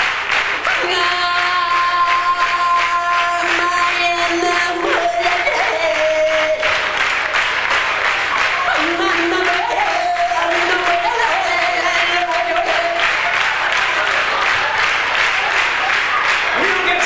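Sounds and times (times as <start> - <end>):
audience clapping along: 0.0 - 17.0
man singing into a microphone: 0.8 - 7.1, 8.7 - 13.3, 16.6 - 17.0.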